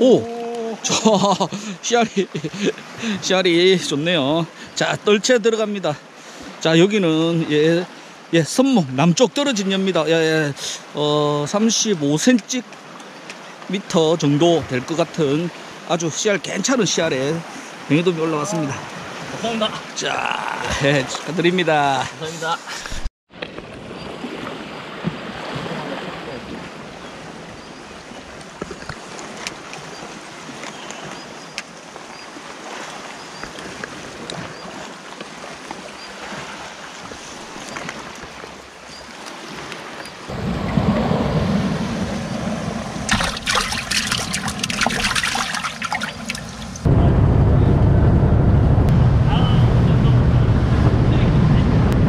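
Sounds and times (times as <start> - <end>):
boat under way: 0.0 - 52.0
sea water washing on rocks: 28.3 - 46.9
wind rumble: 40.3 - 52.0
water splashing in a bucket: 43.0 - 46.9.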